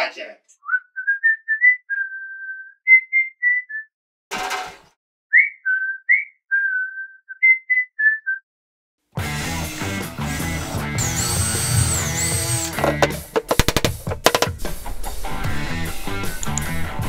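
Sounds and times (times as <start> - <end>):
person whistling a tune: 0.6 - 3.9, 5.3 - 8.5
music: 9.2 - 17.0.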